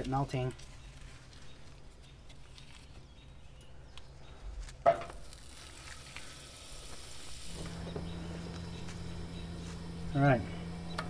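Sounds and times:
low steady hum: 0:07.4 - 0:11.0.

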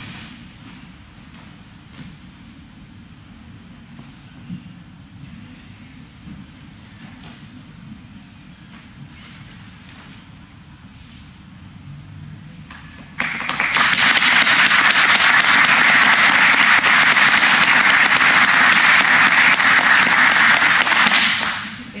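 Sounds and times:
group applauding: 0:13.2 - 0:21.8.

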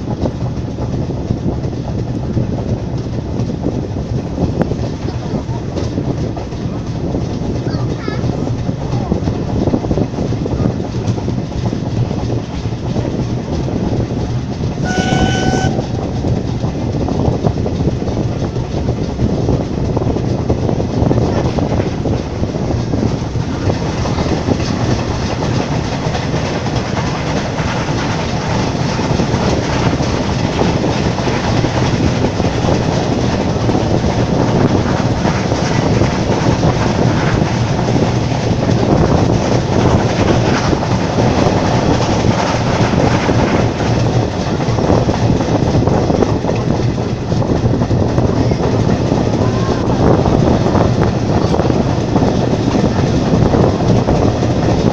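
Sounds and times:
freight train passing: 0:00.0 - 0:54.9
rush of wind: 0:00.0 - 0:54.9
train wheels clattering over rails: 0:00.0 - 0:54.9
train whistle toot: 0:14.8 - 0:16.0.

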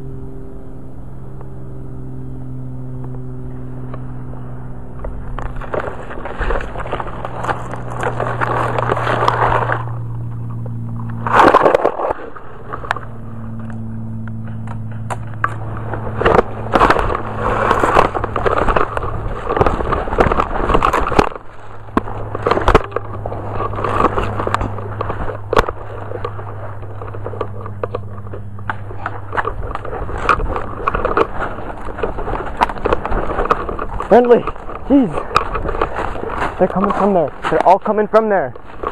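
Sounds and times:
steady low hum: 0:00.0 - 0:38.9
twigs snapping: 0:03.0 - 0:38.9
brush rustling and crackling: 0:03.5 - 0:38.9.

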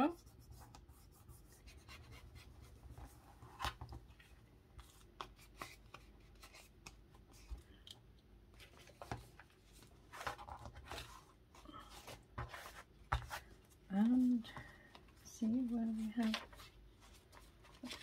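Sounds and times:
paper rustling: 0:08.5 - 0:18.0.

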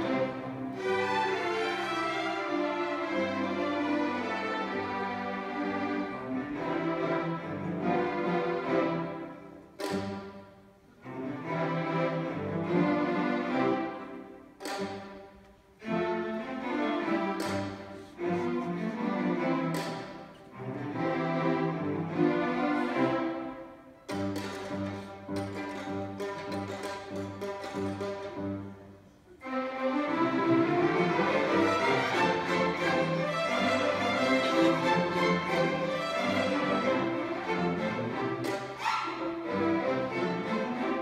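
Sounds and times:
string orchestra playing classical piece: 0:00.0 - 0:41.0.

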